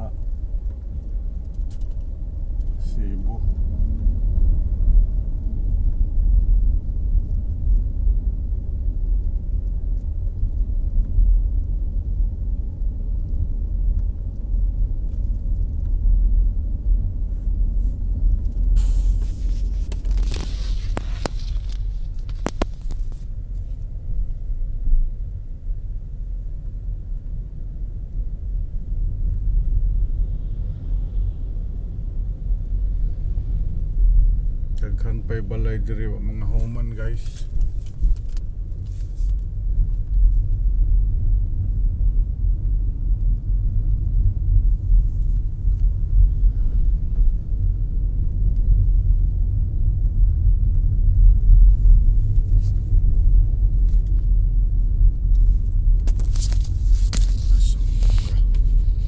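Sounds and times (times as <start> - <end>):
car engine and tyres rumble: 0.0 - 59.0
hiss with sharp clicks: 18.8 - 19.4.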